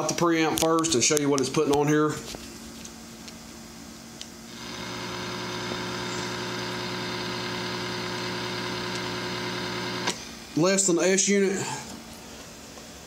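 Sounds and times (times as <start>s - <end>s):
radio speaker buzz with hiss: 4.5s - 10.3s.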